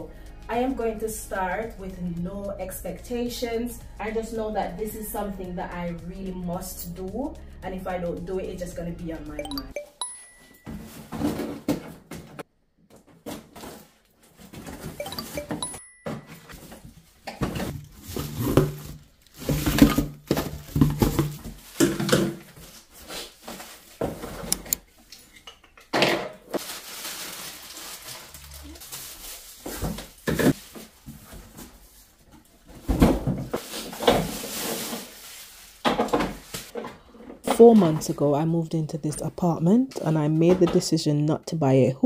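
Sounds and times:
cardboard and packing rustling: 10.5 - 15.0, 16.0 - 25.0, 26.5 - 38.1
plastic wrapping crinkling: 16.6 - 24.6, 26.5 - 32.8, 33.6 - 36.8.

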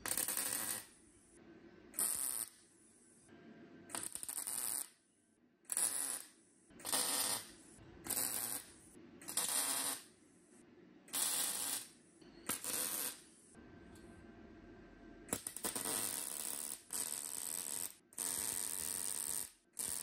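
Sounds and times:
welding arc bursts: 0.0 - 0.9, 2.0 - 2.6, 3.9 - 4.9, 5.7 - 10.2, 11.1 - 13.2, 15.3 - 20.0.

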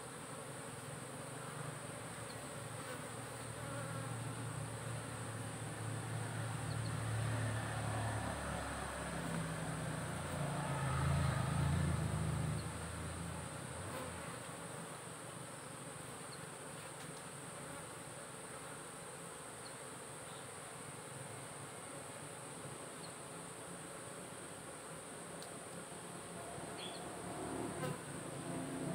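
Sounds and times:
honeybees buzzing: 0.0 - 28.9.

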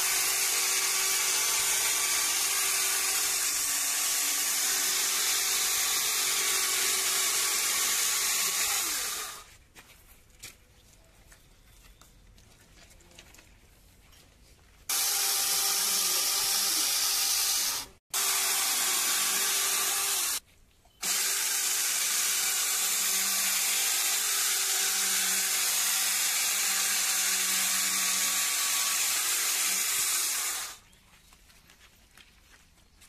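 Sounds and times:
electric chainsaw cutting log: 0.0 - 9.5, 14.9 - 20.4, 21.0 - 30.8.

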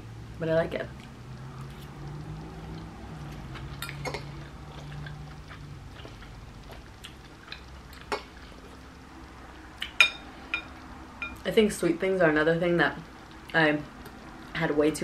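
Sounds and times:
low steady hum: 0.0 - 15.0
chewing: 1.0 - 9.0.

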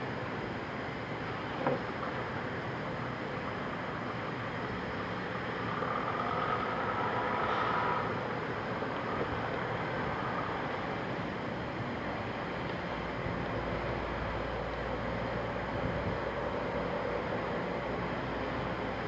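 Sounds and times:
machinery noise: 3.5 - 11.6.

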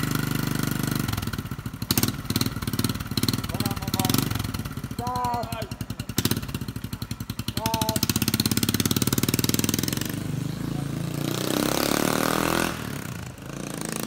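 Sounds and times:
motorcycle engine running: 0.0 - 14.0
person calling: 7.6 - 8.1.

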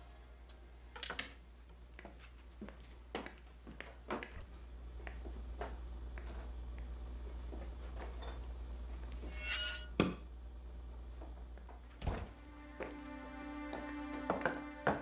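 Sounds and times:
low hum: 8.2 - 15.0
bright ringing shimmer: 9.2 - 9.9.

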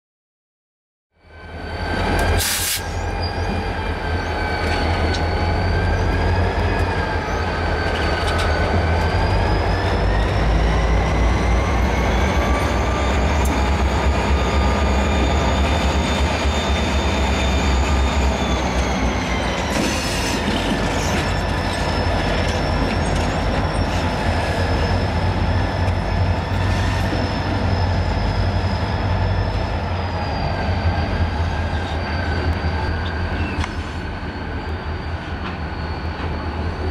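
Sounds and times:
diesel locomotive engine rumble: 1.2 - 36.9.

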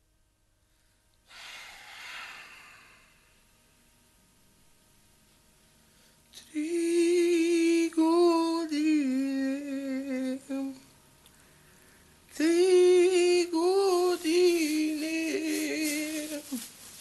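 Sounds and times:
man humming high: 12.4 - 16.7.

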